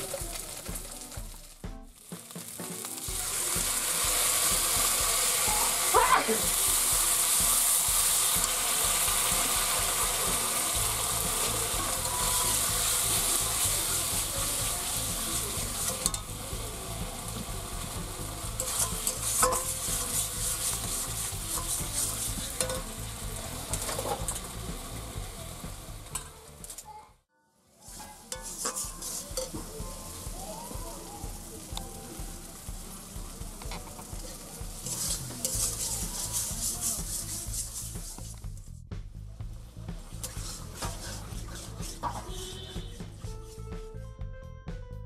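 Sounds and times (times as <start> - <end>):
potatoes frying in a pan: 0.0 - 27.0, 27.8 - 38.7, 39.5 - 43.1
metal spatula scraping a pan: 3.8 - 16.4, 18.4 - 24.6, 27.8 - 30.2, 33.6 - 38.4, 40.2 - 42.9.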